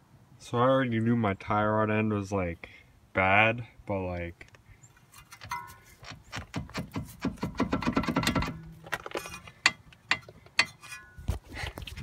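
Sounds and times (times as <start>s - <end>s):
metallic clicks and rattles: 5.0s - 11.3s.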